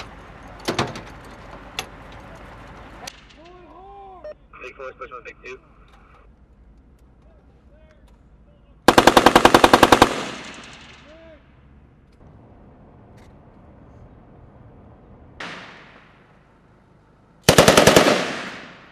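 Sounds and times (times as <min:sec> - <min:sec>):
machine gun firing bursts: 0:08.9 - 0:11.0, 0:17.5 - 0:18.9
gunshot echo: 0:10.1 - 0:11.2, 0:15.4 - 0:16.4, 0:18.0 - 0:18.9.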